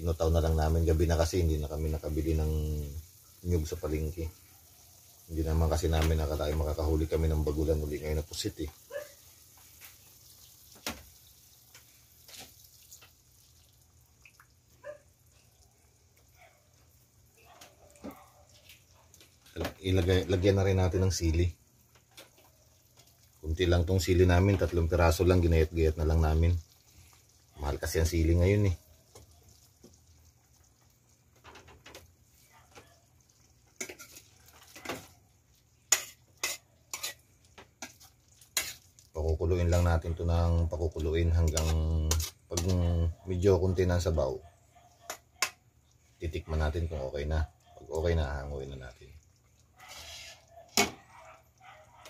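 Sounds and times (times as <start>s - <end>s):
liquid trickle: 0.8s - 44.7s, 45.6s - 52.0s
metal clanking on wok: 33.7s - 35.1s, 35.9s - 38.9s, 41.4s - 42.8s
ladle scraping in metal wok: 33.8s - 35.1s, 35.9s - 39.0s, 41.5s - 42.8s, 49.8s - 51.0s.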